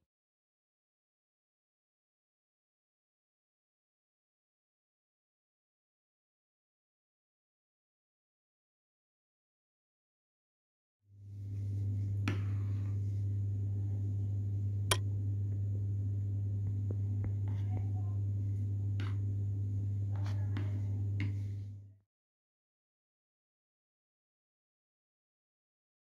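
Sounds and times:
low hum: 11.2 - 22.0.

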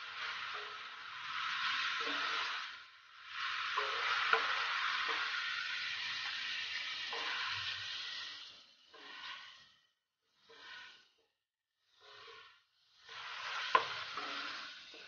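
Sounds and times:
chicken sizzling in oil: 0.0 - 11.0, 11.9 - 15.0.

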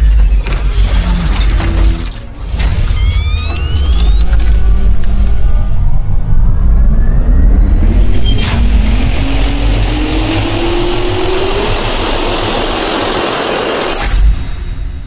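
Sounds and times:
jet turbine whine rising: 2.5 - 14.9
loud rushing roar: 3.2 - 13.8.

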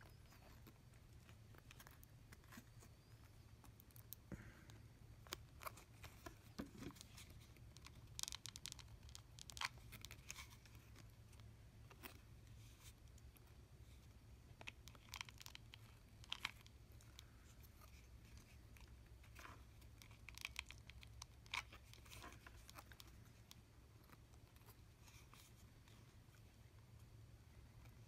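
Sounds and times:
small parts clicking and rustling: 0.0 - 26.6.

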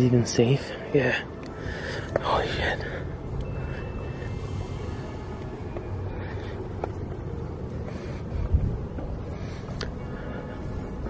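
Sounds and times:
wind rumbling on microphone: 7.4 - 10.0.

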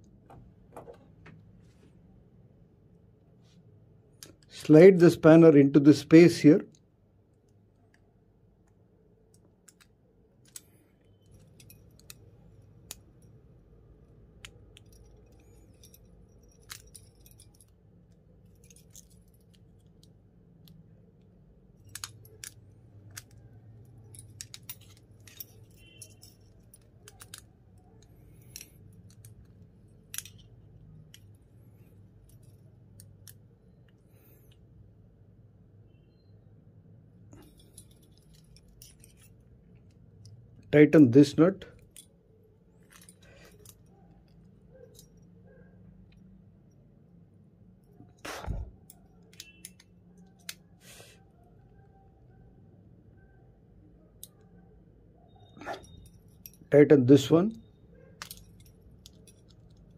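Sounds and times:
faint low hum: 0.0 - 59.9
metallic clicks of tools on bolts: 58.2 - 59.9.

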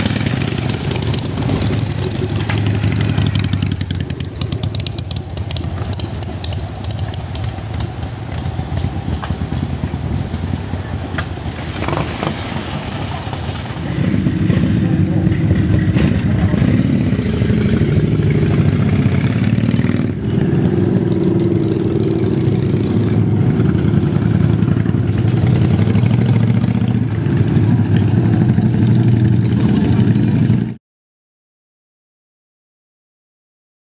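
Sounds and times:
motorcycle engine idling: 0.0 - 11.9.

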